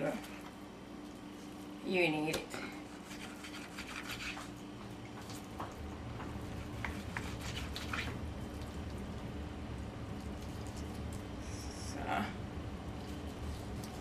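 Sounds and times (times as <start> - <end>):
steady low hum: 0.0 - 14.0
meat being cut on wooden board: 2.8 - 4.6, 5.2 - 8.2.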